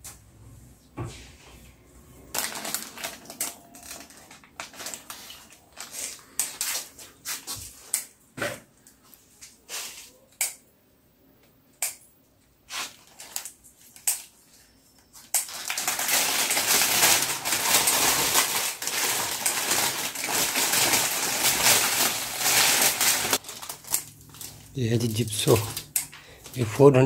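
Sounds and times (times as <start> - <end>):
plastic sleeve crumpling: 2.3 - 7.1, 12.7 - 13.6, 15.4 - 26.9.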